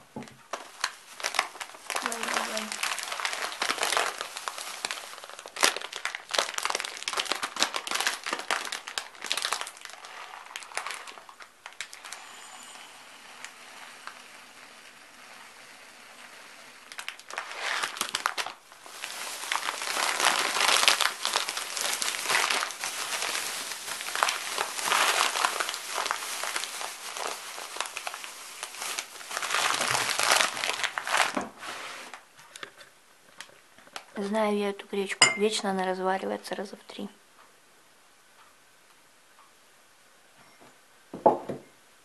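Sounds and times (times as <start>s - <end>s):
plastic bag crinkling: 0.4s - 12.2s, 13.4s - 34.3s.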